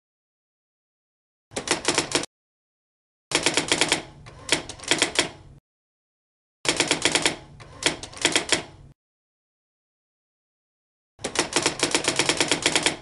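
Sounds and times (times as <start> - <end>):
rapid keyboard key clicks: 1.6 - 2.3, 11.2 - 13.0.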